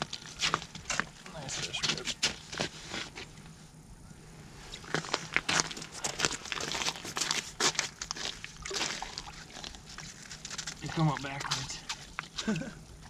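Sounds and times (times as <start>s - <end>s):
snow and ice crunching: 4.8s - 11.9s.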